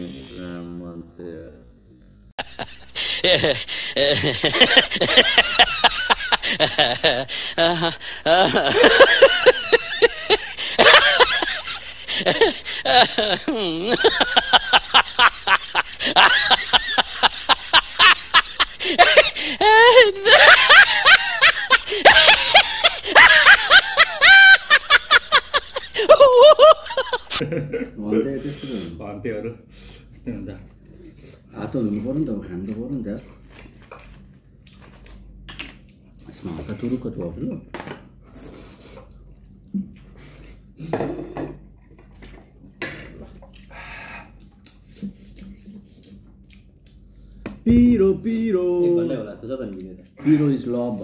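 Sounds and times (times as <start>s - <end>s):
people laughing high-pitched: 2.4s - 27.5s.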